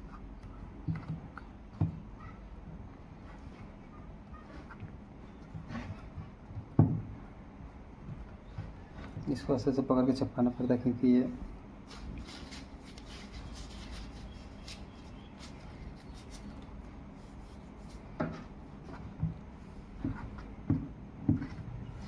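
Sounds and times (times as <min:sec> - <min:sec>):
hands and tool scratching: 0:00.0 - 0:06.4, 0:11.8 - 0:22.0
soft handling knocks: 0:18.1 - 0:22.0.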